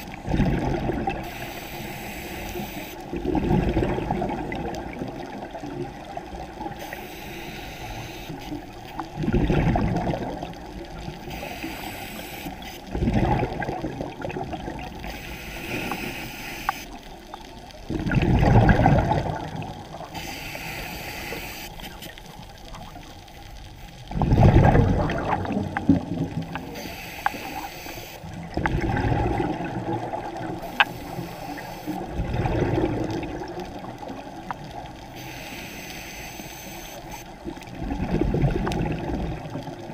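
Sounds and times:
exhaled bubbles rushing underwater: 0.0s - 1.9s, 3.0s - 7.0s, 8.5s - 11.9s, 12.5s - 16.2s, 16.9s - 20.3s, 22.0s - 35.2s, 37.3s - 39.9s
regulator breathing hiss: 1.2s - 3.1s, 6.8s - 8.6s, 11.3s - 12.9s, 15.0s - 17.0s, 20.1s - 22.3s, 26.6s - 28.2s, 30.6s - 32.0s, 35.1s - 37.3s.

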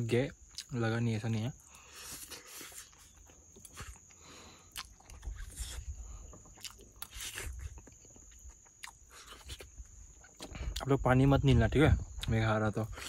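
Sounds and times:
person chewing: 0.4s - 0.8s, 1.6s - 10.9s.

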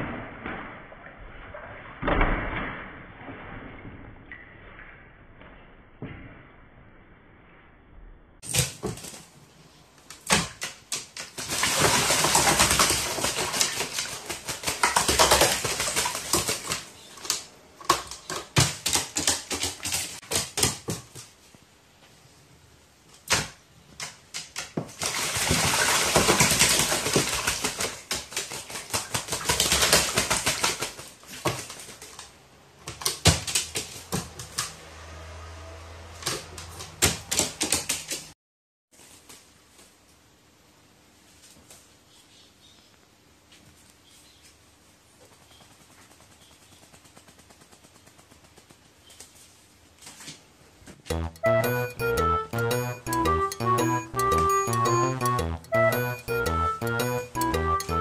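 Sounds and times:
crow splashing in water: 10.2s - 17.1s, 24.5s - 32.2s.

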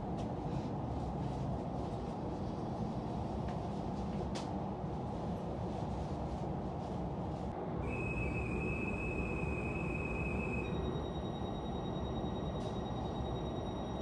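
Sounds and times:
electric train humming: 7.5s - 14.0s
long whistle blast: 7.8s - 10.9s
high steady tone: 7.8s - 14.0s.

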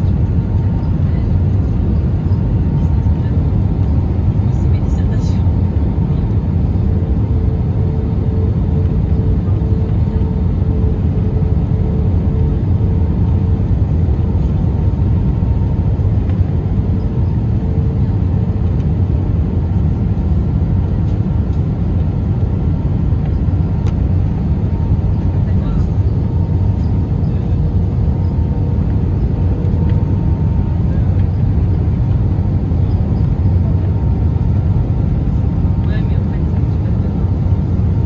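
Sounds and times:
aircraft cabin engine rumble: 0.0s - 38.0s.

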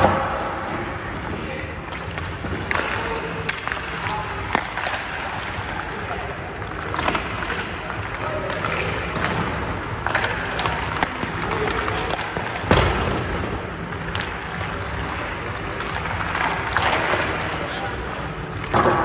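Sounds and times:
light knocks of stick and puck: 2.0s - 5.2s
stick cracking puck: 2.0s - 5.5s, 8.5s - 13.0s
skates scraping on ice: 6.8s - 12.9s.

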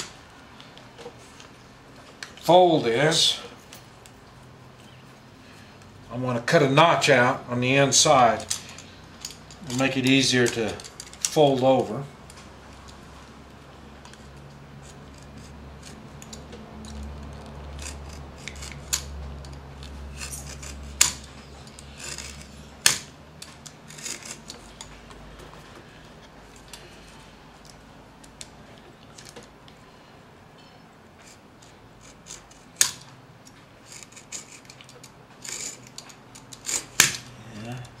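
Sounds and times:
knife scraping cuts in leather: 14.8s - 23.1s, 23.8s - 24.7s.

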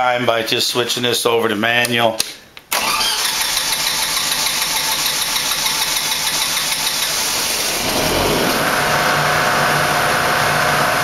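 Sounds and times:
generator engine running: 2.8s - 11.0s.

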